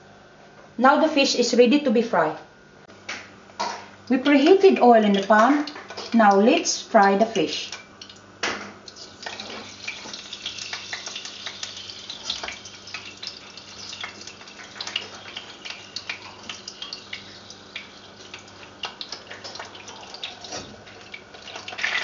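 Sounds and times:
oil crackling and popping: 0:07.7 - 0:22.0
fish sizzling in hot oil: 0:08.8 - 0:22.0.

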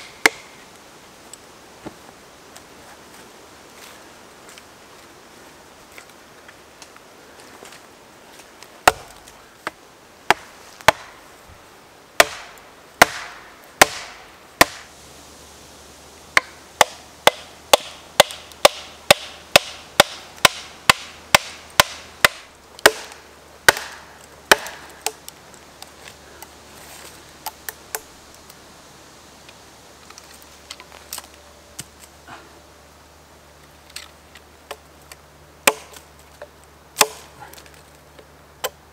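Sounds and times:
wooden knocks of log splitting: 0:08.8 - 0:11.1, 0:12.2 - 0:14.9, 0:16.4 - 0:25.2, 0:35.6 - 0:36.0.

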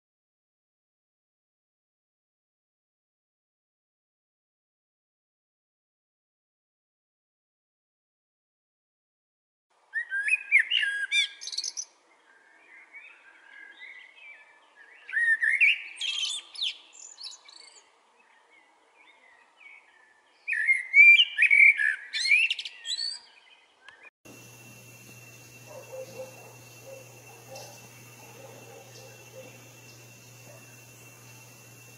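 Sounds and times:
blackbird singing: 0:09.9 - 0:31.9
soft bird twittering: 0:19.0 - 0:31.9.

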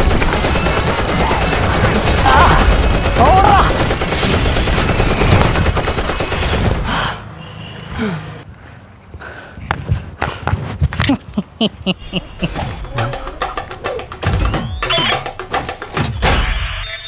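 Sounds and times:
rapid machine-gun fire: 0:00.0 - 0:06.9.

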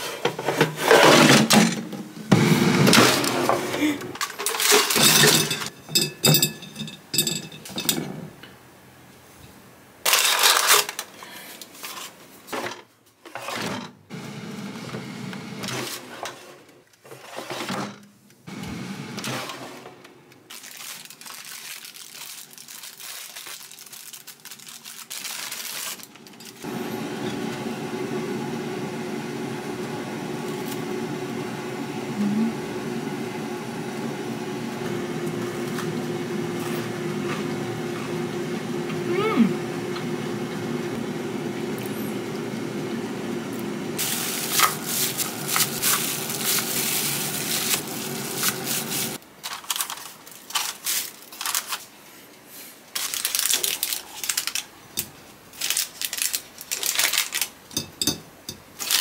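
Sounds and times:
appliance parts clattering: 0:00.0 - 0:02.1, 0:02.8 - 0:08.6, 0:10.0 - 0:14.0, 0:44.0 - 0:51.8
mechanical hum: 0:00.0 - 0:59.0.

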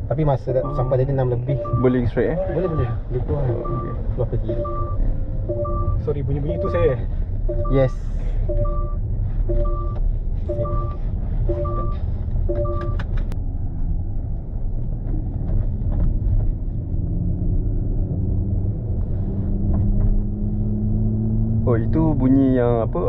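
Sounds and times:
road rumble in car cabin: 0:00.0 - 0:23.0
seatbelt reminder chime: 0:03.6 - 0:06.8, 0:07.5 - 0:07.9, 0:08.5 - 0:13.0.

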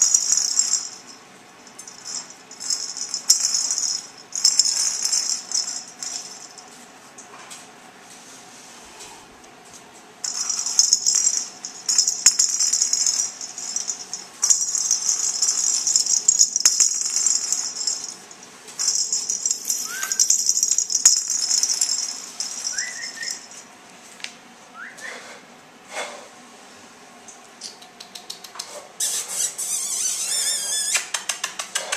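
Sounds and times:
plastic rattle toy rattling: 0:00.0 - 0:06.7, 0:10.2 - 0:23.6
short rising squeaks: 0:29.0 - 0:31.1.

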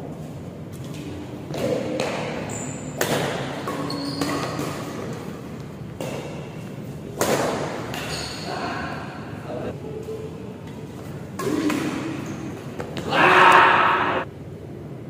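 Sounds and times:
badminton rackets hitting shuttlecock: 0:01.5 - 0:09.0, 0:11.3 - 0:14.2.

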